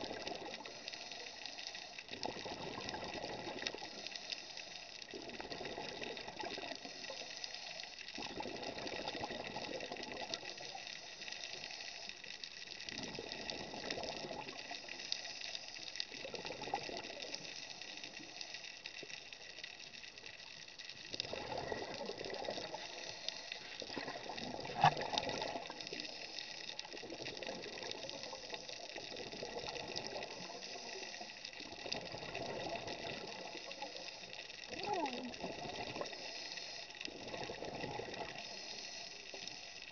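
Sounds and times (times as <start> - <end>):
diver's breath bubbling: 34.7 - 36.2
steady high hiss: 38.4 - 39.9.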